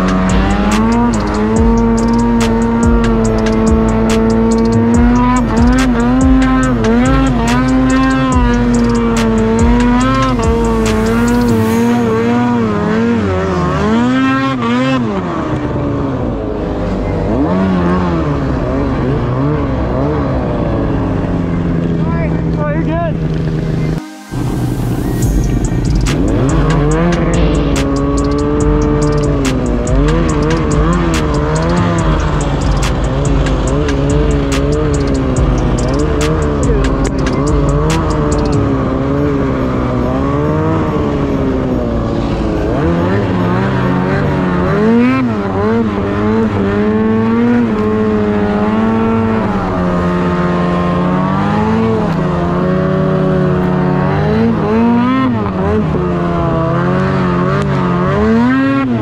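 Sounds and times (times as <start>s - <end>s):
sharp ticks: 0.0s - 11.7s, 25.2s - 38.7s
snowmobile engine revving: 0.0s - 59.0s.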